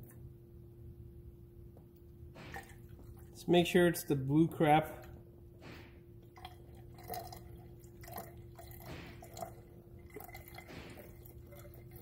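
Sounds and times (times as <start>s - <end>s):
faint steady hum: 0.0s - 12.0s
liquid trickling and splashing: 6.3s - 12.0s.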